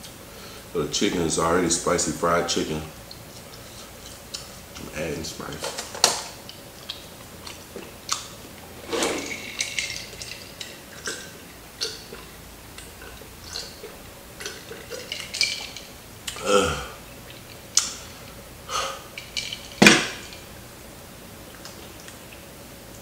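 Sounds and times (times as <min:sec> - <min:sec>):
crunching while chewing: 0:06.0 - 0:20.4
throaty sound: 0:16.3 - 0:17.1.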